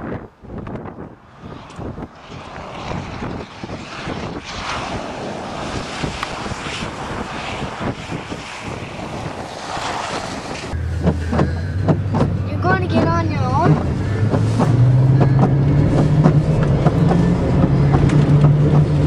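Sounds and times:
wind on microphone: 0.0 - 19.0
water spray rushing: 4.6 - 12.2.

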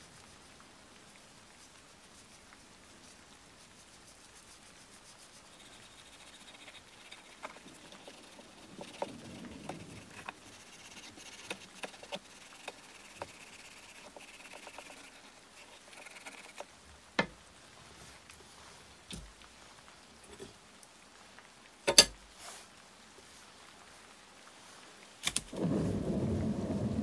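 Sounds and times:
light scratching on knife: 0.0 - 16.7.

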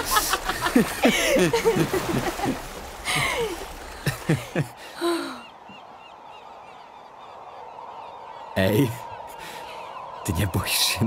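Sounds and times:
water sloshing and splashing: 0.0 - 4.8.

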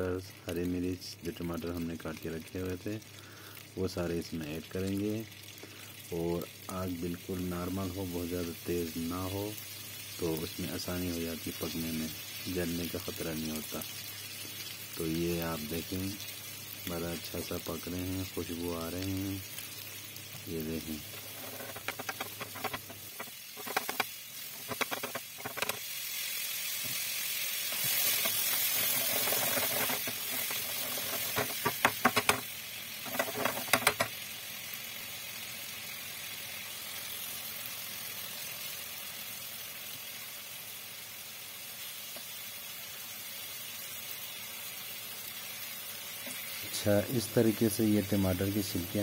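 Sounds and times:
food sizzling in a frying pan: 0.0 - 49.0
pan clattering: 21.0 - 25.8, 27.7 - 34.1.

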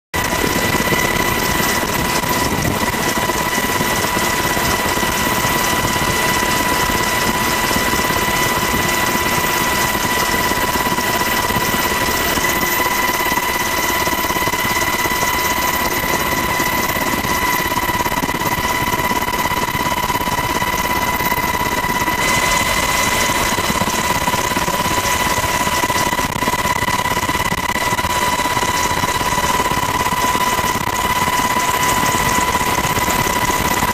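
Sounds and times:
helicopter engine and rotor: 0.1 - 33.9.

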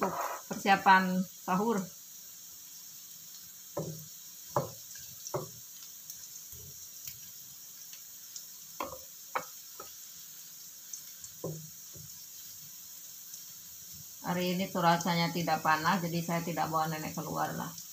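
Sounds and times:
spatula knocking and scraping wok: 0.0 - 0.7, 3.7 - 5.6, 8.8 - 10.0, 11.4 - 12.2
frying oil sizzling: 0.0 - 17.9.

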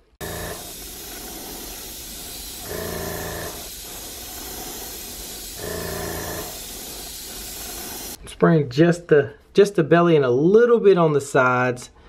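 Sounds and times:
airbrush spraying paint: 0.0 - 8.2
louder spurt with hum: 0.0 - 8.2.

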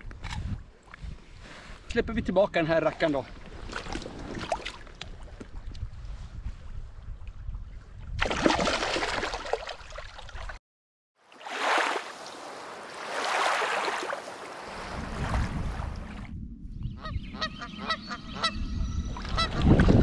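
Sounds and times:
shallow water splashing: 3.1 - 5.4, 8.2 - 10.6, 11.3 - 16.3.

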